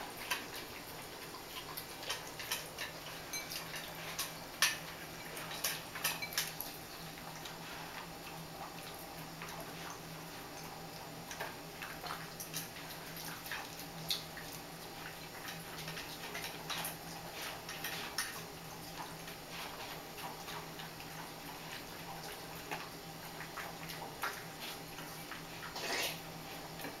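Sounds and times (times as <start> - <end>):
kibble clinking against bowl: 2.1 - 6.6.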